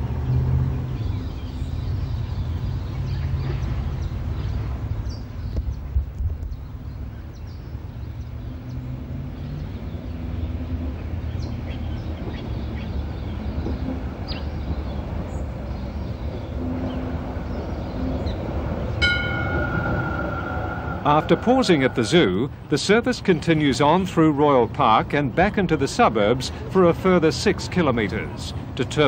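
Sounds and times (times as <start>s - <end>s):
tram rumbling on track: 0.0s - 29.0s
high squeal: 19.0s - 22.8s.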